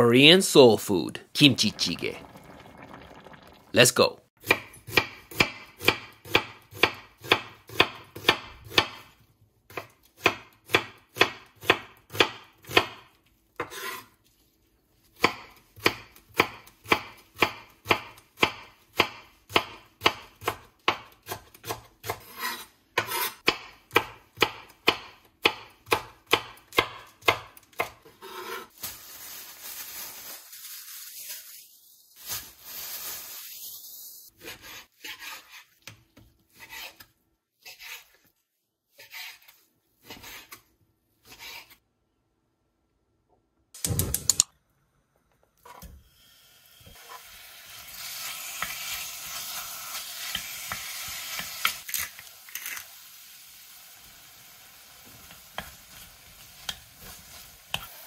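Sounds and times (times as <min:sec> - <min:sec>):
knife chopping on wooden board: 0:04.4 - 0:09.0, 0:09.7 - 0:13.0, 0:15.2 - 0:28.6
plastic bag rustling: 0:28.7 - 0:34.3.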